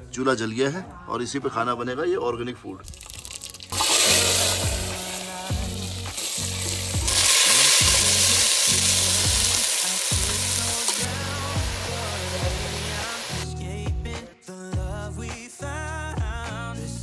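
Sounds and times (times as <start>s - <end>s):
background music with low beat: 2.5s - 17.0s
vegetables frying and sizzling: 2.9s - 13.4s.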